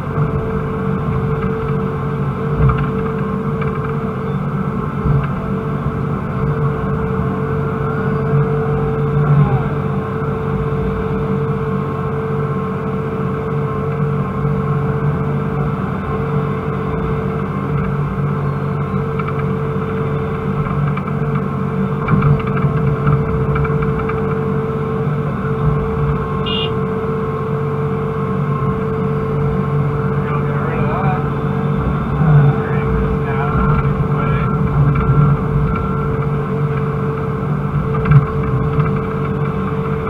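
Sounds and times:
excavator diesel engine: 0:00.0 - 0:40.0
hydraulic whine: 0:00.0 - 0:40.0
high beep: 0:26.4 - 0:26.7.

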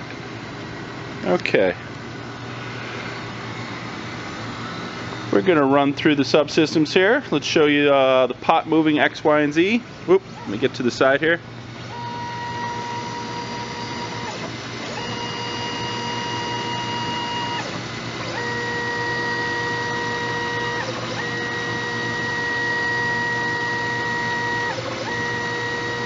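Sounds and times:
drive motors whining: 0:10.2 - 0:26.0.

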